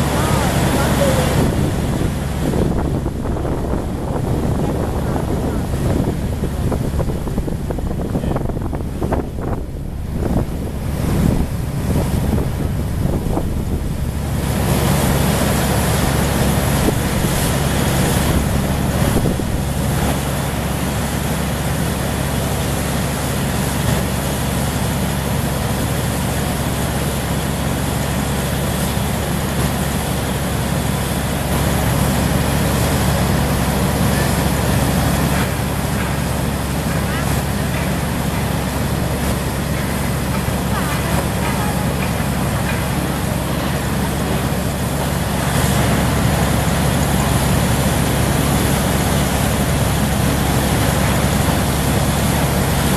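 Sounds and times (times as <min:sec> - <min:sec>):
wind on microphone: 0:00.0 - 0:21.3
low machine hum: 0:00.0 - 0:52.9.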